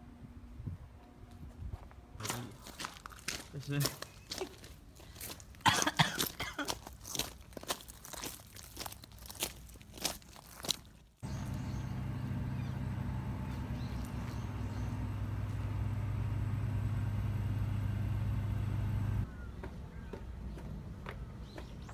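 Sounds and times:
machine humming: 0:11.2 - 0:19.3.

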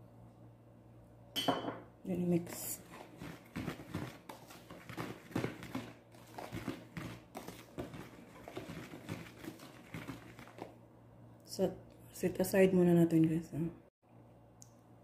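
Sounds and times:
whisk stirring flour in basin: 0:02.2 - 0:10.8.

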